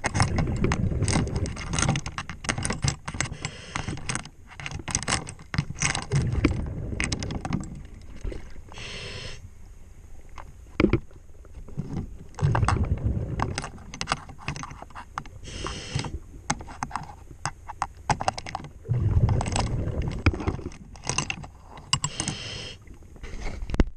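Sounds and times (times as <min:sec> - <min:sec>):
rumbling rush of exhaled bubbles: 0:00.3 - 0:01.6, 0:06.1 - 0:08.4, 0:12.4 - 0:13.8, 0:18.8 - 0:20.7
regulator hiss on inhale: 0:03.3 - 0:04.1, 0:08.7 - 0:09.5, 0:15.4 - 0:16.2, 0:22.0 - 0:22.9.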